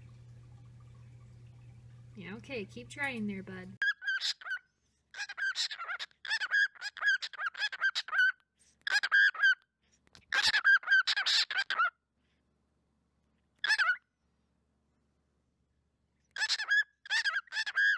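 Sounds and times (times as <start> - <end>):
cockatiel chirping: 3.8 - 4.6, 5.2 - 9.6, 10.3 - 11.9, 16.4 - 17.9.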